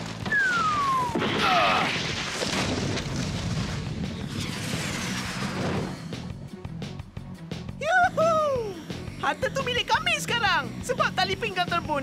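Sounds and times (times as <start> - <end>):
cartoon falling whistle: 0.3 - 1.9
rumbling boom: 0.4 - 6.5.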